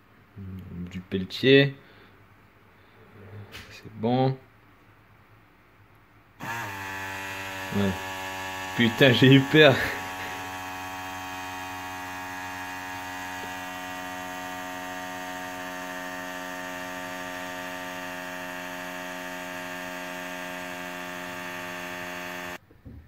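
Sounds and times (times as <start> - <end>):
cooling fan motor humming: 6.4 - 22.6.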